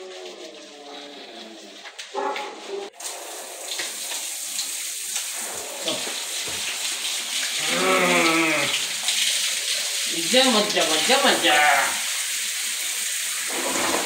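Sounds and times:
water splashing on tiled floor: 0.0 - 14.0
person giving long wavering call: 7.6 - 8.7.

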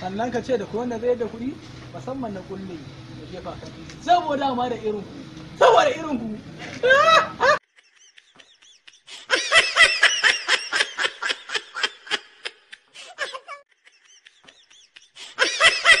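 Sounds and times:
high-pitched snickering laughter: 6.6 - 16.0.

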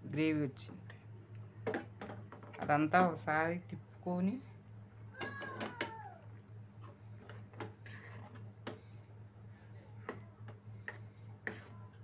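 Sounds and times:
steady low hum: 0.0 - 12.0
spoon stirring thick gravy: 6.7 - 8.7, 10.1 - 12.0.

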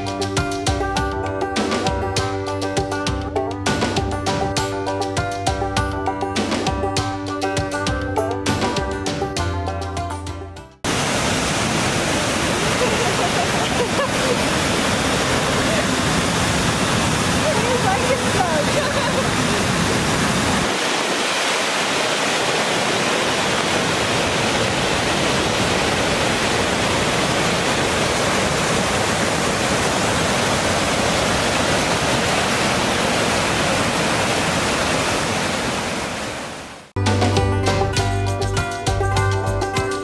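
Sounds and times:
music: 0.0 - 10.9, 37.0 - 40.0
rushing whitewater: 10.8 - 37.0.

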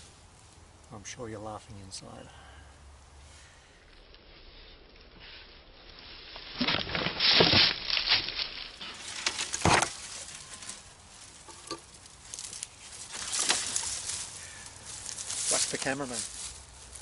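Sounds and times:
dry leaves and twigs crunching: 3.9 - 17.0.

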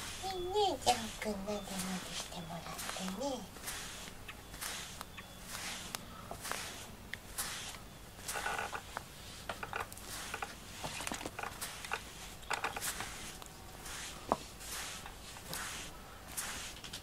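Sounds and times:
brush rubbing through cat fur: 0.0 - 17.0
small ticks: 8.3 - 13.5.

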